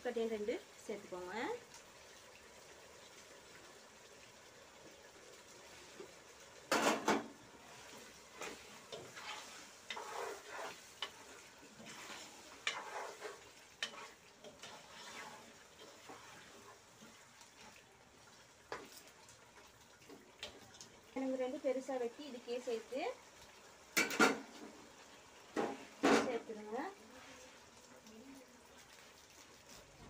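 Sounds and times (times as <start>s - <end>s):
wooden spoon scraping in pot: 6.8s - 17.9s, 18.6s - 20.6s, 25.5s - 28.0s.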